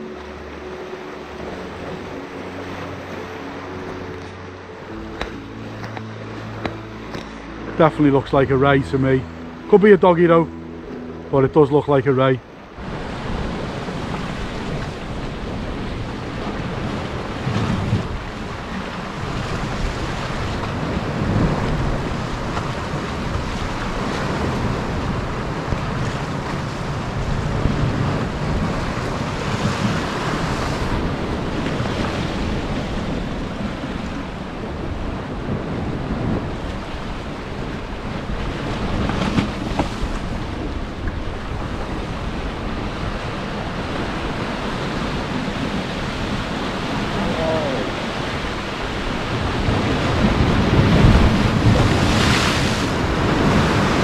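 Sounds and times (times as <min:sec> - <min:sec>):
surf breaking against rocks: 0:11.6 - 0:54.0
wind buffeting microphone: 0:12.4 - 0:54.0.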